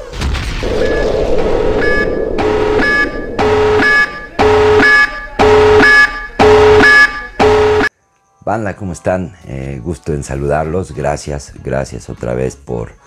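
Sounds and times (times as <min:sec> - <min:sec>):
noisy whoosh: 0:00.3 - 0:06.5
pulsing alarm tone: 0:00.6 - 0:07.9.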